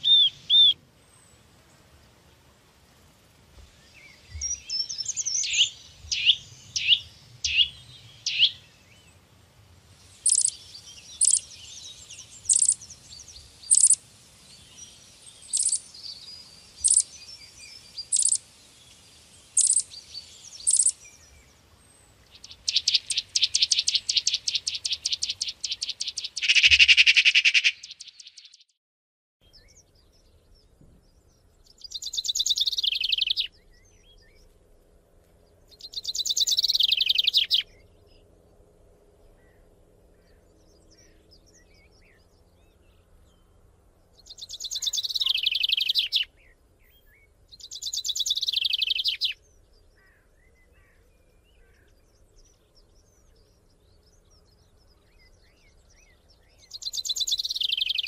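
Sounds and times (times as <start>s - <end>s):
birds chirping and calling: 0.0s - 0.8s, 4.0s - 9.2s, 10.2s - 14.0s, 14.7s - 18.5s, 19.5s - 21.5s, 22.2s - 28.6s, 31.2s - 34.4s, 35.7s - 37.9s, 44.2s - 58.0s.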